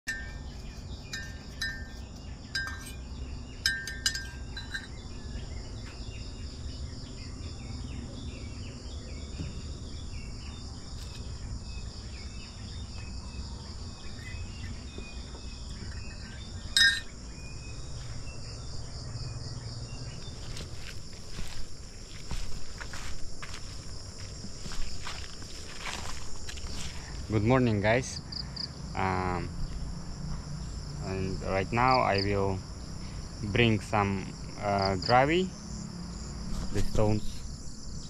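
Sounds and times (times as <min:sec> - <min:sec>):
insects buzzing: 0:00.0 - 0:38.0
sharp clink: 0:00.1 - 0:05.0, 0:16.8 - 0:17.2
short chirping calls: 0:14.2 - 0:17.7.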